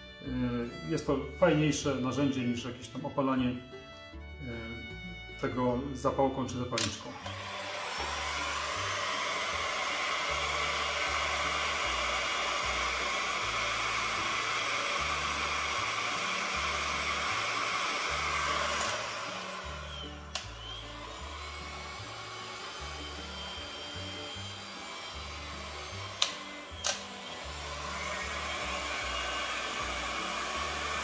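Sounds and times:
background music with bass line: 0.0s - 6.7s
click: 6.8s - 7.0s, 26.2s - 27.0s
heat gun blowing hot air: 6.8s - 31.0s.

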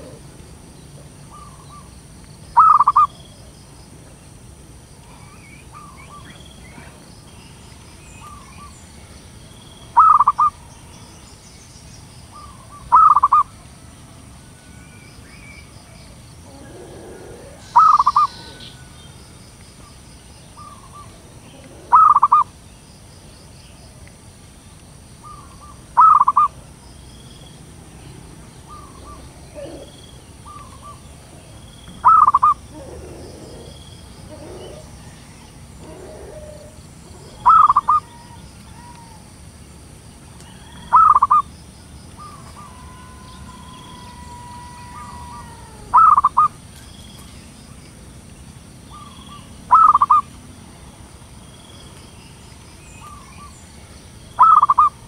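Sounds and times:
dove cooing: 0.0s - 1.9s, 2.6s - 3.2s, 10.0s - 10.6s, 12.4s - 13.5s, 16.4s - 18.9s, 20.6s - 22.5s, 25.2s - 26.5s, 28.6s - 31.2s, 31.9s - 39.3s, 40.6s - 41.4s, 42.2s - 46.6s, 48.9s - 50.3s, 54.4s - 55.0s.

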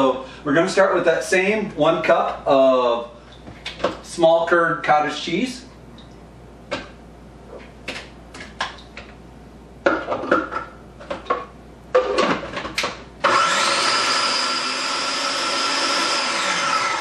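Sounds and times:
food processor motor whining: 13.2s - 17.0s.

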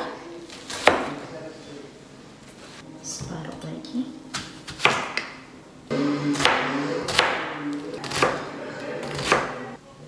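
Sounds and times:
background music: 2.8s - 9.8s
knife chopping on plastic board: 4.4s - 5.3s, 6.3s - 8.4s, 9.0s - 9.6s.

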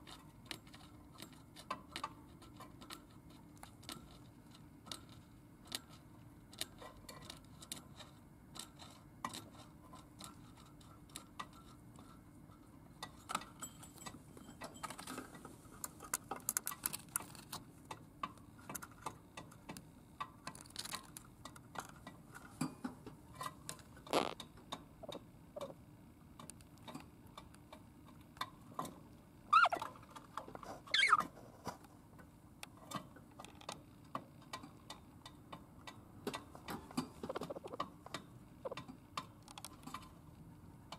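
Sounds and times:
budgerigar beak clicking: 25.0s - 25.8s, 29.5s - 29.9s, 37.2s - 38.9s
budgerigar chirps: 29.5s - 29.9s, 30.9s - 31.2s, 37.3s - 37.8s.

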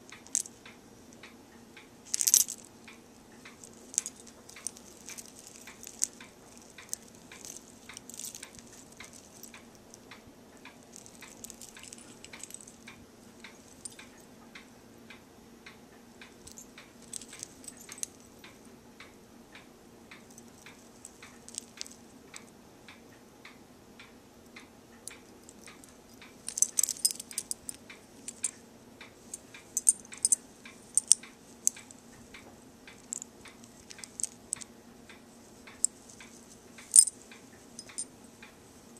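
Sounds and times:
metal charms jingling: 0.2s - 0.6s, 2.1s - 2.7s, 3.4s - 10.0s, 10.8s - 14.2s, 16.4s - 18.5s, 20.3s - 22.0s, 25.1s - 28.6s, 29.2s - 32.0s, 32.9s - 34.7s, 35.6s - 38.1s.

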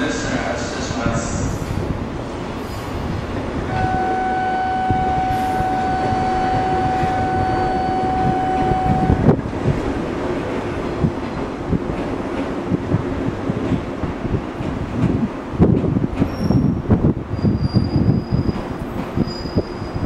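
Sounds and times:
wind noise on microphone: 1.0s - 20.0s
electronic signal tone: 3.7s - 9.2s.

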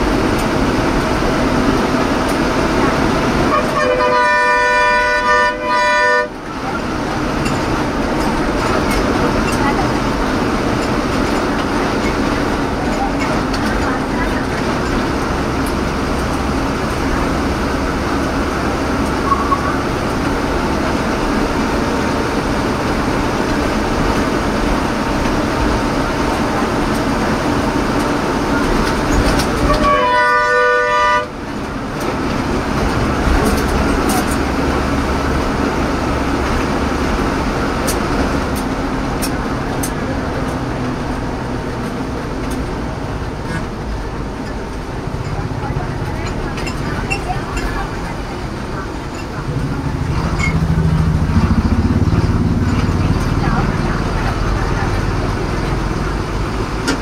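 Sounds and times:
bus engine and road noise: 0.0s - 57.0s
vehicle horn blast: 3.5s - 6.4s, 29.6s - 31.3s.

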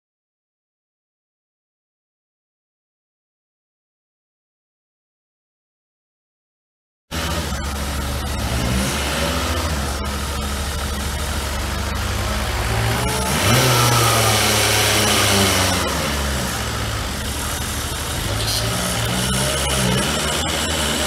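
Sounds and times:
forklift engine running: 7.1s - 21.0s.

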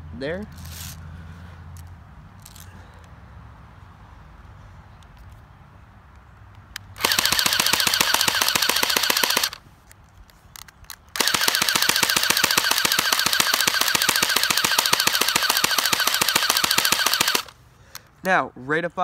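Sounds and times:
airsoft gun firing full auto: 7.0s - 9.6s, 11.2s - 17.6s.

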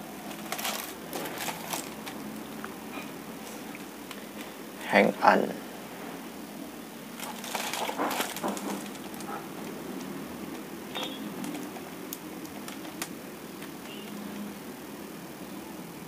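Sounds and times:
shrink-wrapped box crinkling: 0.2s - 2.2s, 7.2s - 10.1s, 12.4s - 13.1s.

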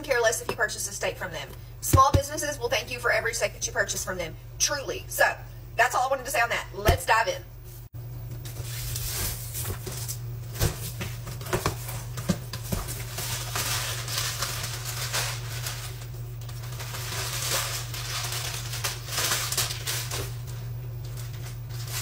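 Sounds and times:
paper liner rustling and crackling: 8.4s - 22.0s.

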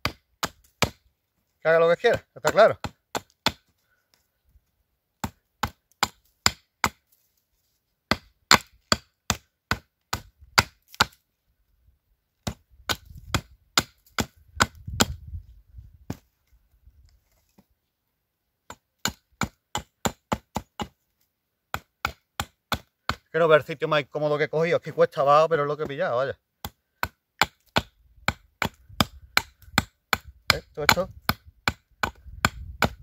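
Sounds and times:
hatchet chopping wood: 0.0s - 1.1s, 2.1s - 3.8s, 5.2s - 7.1s, 8.1s - 11.2s, 12.4s - 15.2s, 16.1s - 16.3s, 18.6s - 21.0s, 21.7s - 23.3s, 25.7s - 33.0s.

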